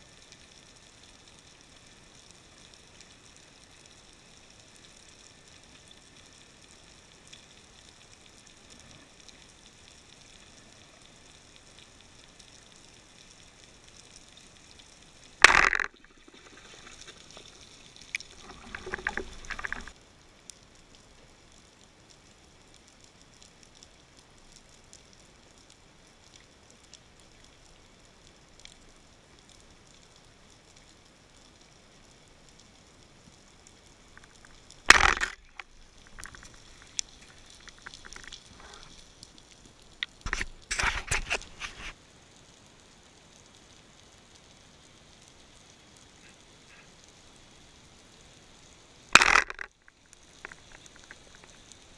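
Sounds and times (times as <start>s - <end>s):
faint underwater hiss: 0.0s - 51.9s
bubbling: 15.4s - 20.0s, 34.0s - 38.9s, 49.1s - 51.9s.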